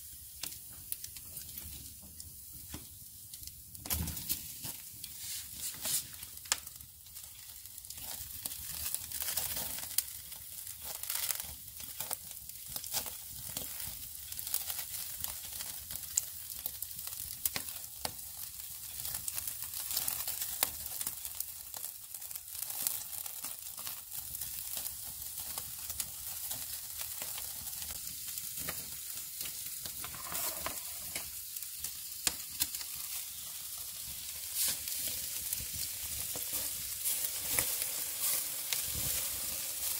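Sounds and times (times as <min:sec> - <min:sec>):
embers crackling and popping: 0:00.0 - 0:39.9
meat sizzling on grill: 0:00.0 - 0:39.9.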